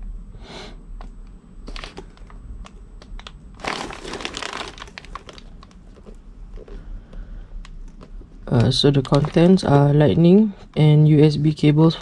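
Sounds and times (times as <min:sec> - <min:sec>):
packaging crinkling and crackling: 0:01.6 - 0:10.0.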